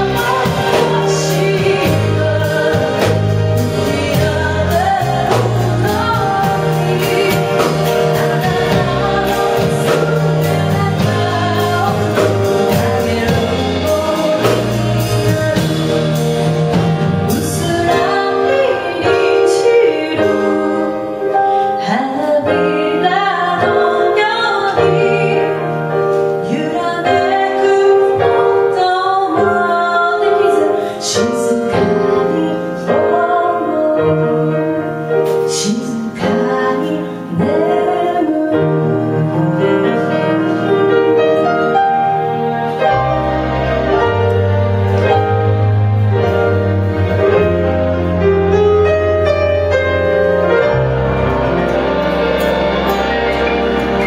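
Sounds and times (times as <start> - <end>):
electric bass: 0.0 - 20.5, 38.6 - 54.0
woman singing: 0.0 - 42.9
drum kit: 0.0 - 54.0
grand piano: 0.0 - 54.0.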